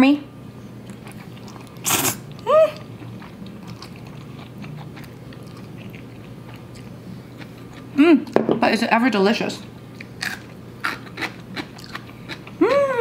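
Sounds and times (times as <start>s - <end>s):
quiet chewing: 0.8s - 8.4s, 9.9s - 12.7s
loud slurp of noodles: 1.8s - 2.2s
person humming: 2.4s - 2.8s, 12.6s - 13.0s.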